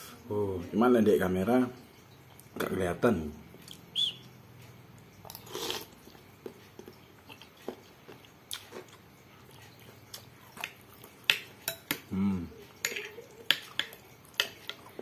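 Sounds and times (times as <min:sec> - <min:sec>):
person chewing: 0:05.2 - 0:15.0
person slurping soup: 0:05.3 - 0:06.0.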